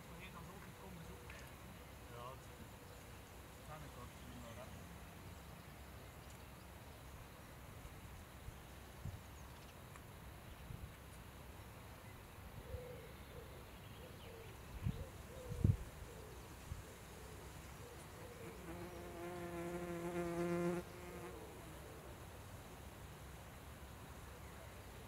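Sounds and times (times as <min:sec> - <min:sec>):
bee buzzing in flight: 0:18.4 - 0:21.7.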